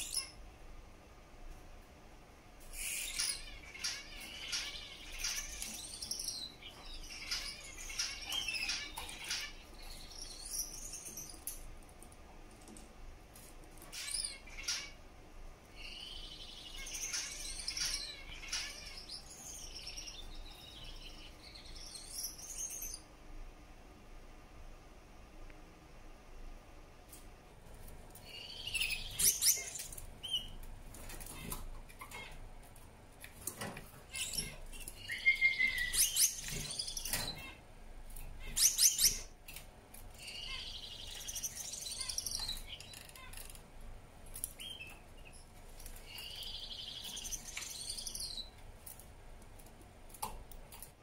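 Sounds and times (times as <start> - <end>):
finch singing: 0.0 - 0.4, 2.7 - 11.7, 13.9 - 15.0, 15.7 - 23.1, 28.2 - 32.4, 33.6 - 37.6, 38.4 - 39.3, 40.1 - 43.5, 44.4 - 48.6.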